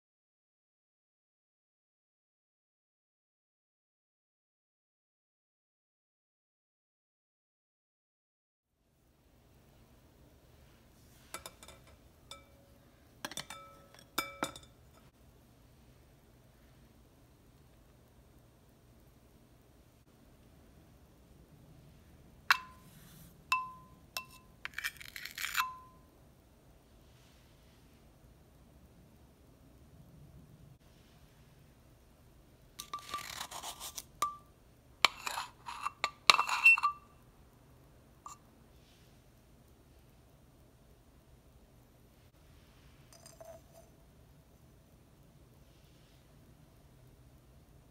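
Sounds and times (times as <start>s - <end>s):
glass clinking against metal sieve: 11.3s - 15.1s, 22.5s - 22.9s, 23.5s - 26.0s, 34.2s - 37.1s
spoon scraping metal tin: 22.5s - 26.0s, 32.8s - 34.4s, 35.0s - 37.1s, 43.1s - 43.9s.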